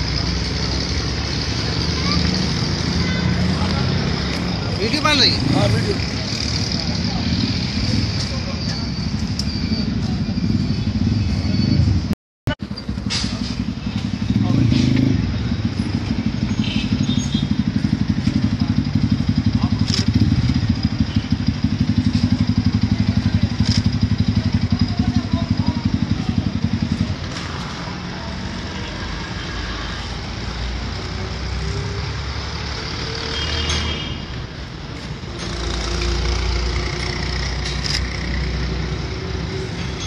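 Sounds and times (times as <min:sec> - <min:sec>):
road traffic rumble: 0:00.0 - 0:40.0
motorcycle engine idling: 0:15.6 - 0:27.2.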